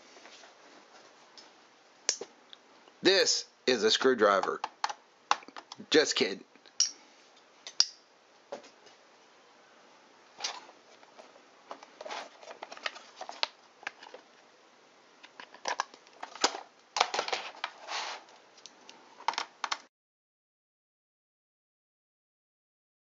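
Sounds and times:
plastic case clicking and rattling: 0:15.2 - 0:17.8, 0:19.2 - 0:19.8.

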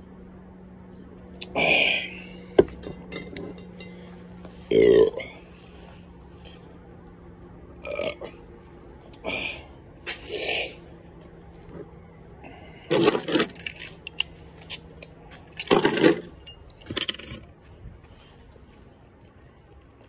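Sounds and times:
metal clinks and scrapes: 0:02.8 - 0:04.3, 0:12.9 - 0:17.5.

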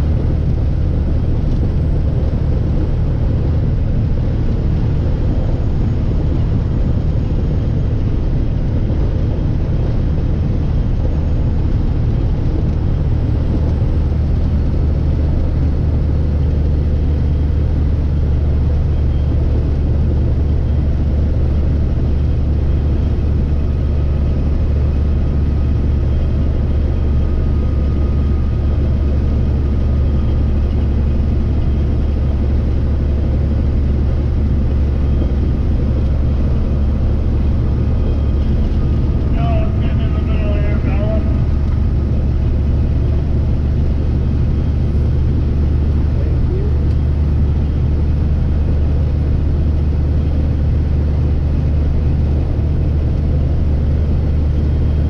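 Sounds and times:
road noise: 0:00.0 - 0:55.0
truck diesel engine drone: 0:00.0 - 0:55.0.

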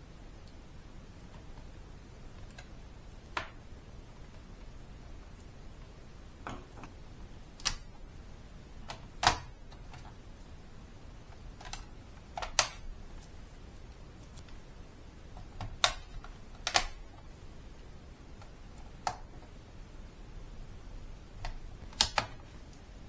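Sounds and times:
plastic laptop parts clicking: 0:08.9 - 0:10.1, 0:11.6 - 0:12.8, 0:15.4 - 0:17.0, 0:21.4 - 0:22.4.

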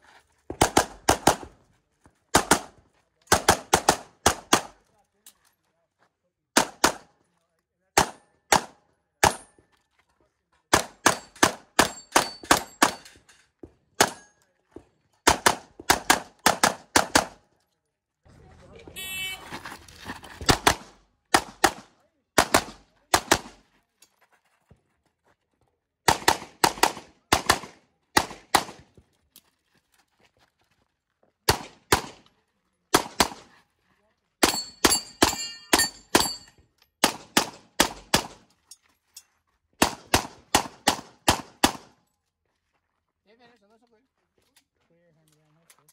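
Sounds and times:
handgun shots: 0:15.3 - 0:17.4, 0:26.1 - 0:28.8.

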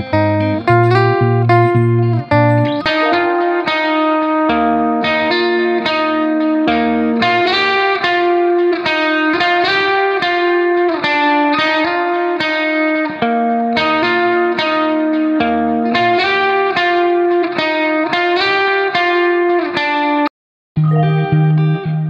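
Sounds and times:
struck notes melody: 0:00.1 - 0:05.9, 0:20.8 - 0:22.0.

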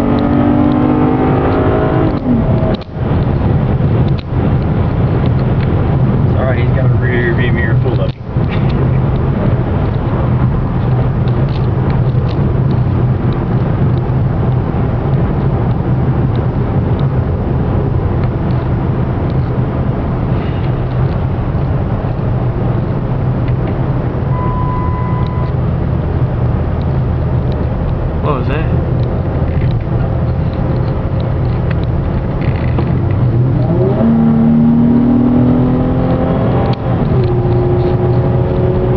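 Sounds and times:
car engine and tyre noise: 0:00.0 - 0:38.9
short beep tone: 0:24.3 - 0:25.6.

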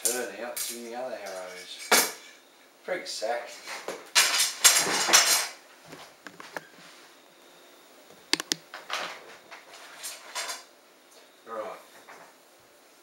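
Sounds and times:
light clicks and taps: 0:08.3 - 0:08.6.

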